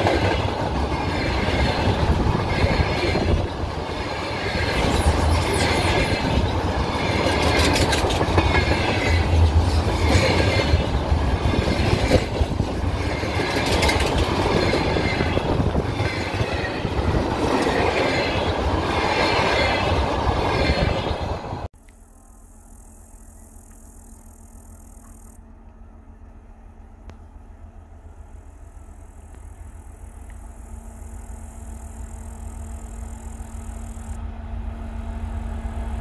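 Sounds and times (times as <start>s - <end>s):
wheels clattering over rail joints: 0.0s - 21.3s
freight train rumbling past: 0.0s - 21.7s, 25.5s - 36.0s.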